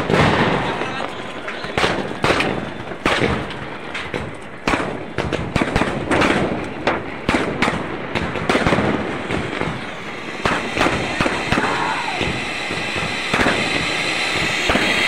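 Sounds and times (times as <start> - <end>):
firework bangs: 0.0 - 15.0
hiss of burning sparks: 5.4 - 15.0.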